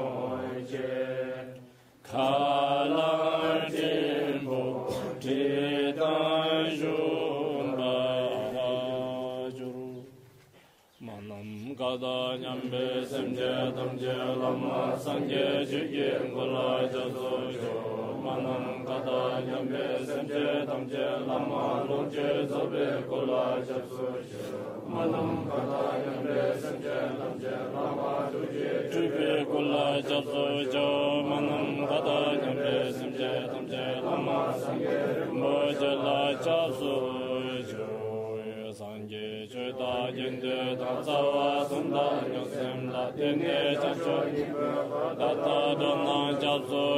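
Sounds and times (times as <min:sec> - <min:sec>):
man chanting: 0:11.0 - 0:14.1.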